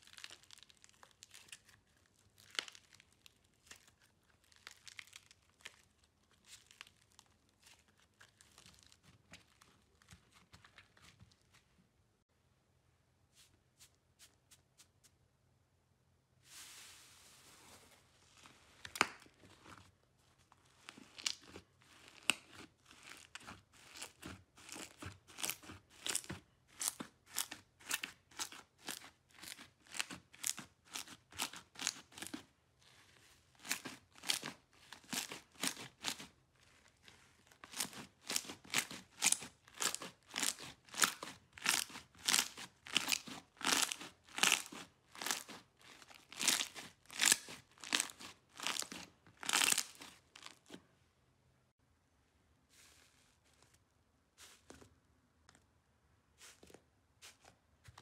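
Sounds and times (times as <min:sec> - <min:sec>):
slime squishing: 0:00.0 - 0:11.7, 0:16.5 - 0:50.8.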